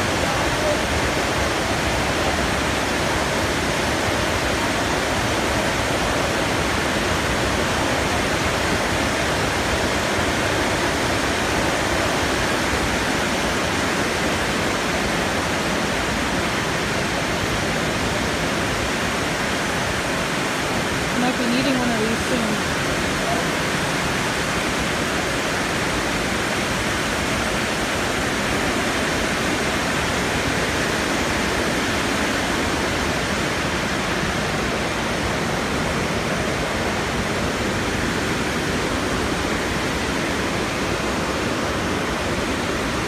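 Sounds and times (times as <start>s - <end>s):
water rushing: 0.0s - 43.0s.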